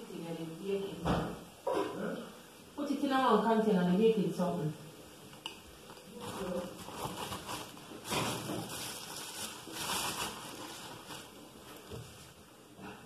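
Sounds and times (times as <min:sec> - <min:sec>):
rustling and handling noises: 0:05.4 - 0:13.0.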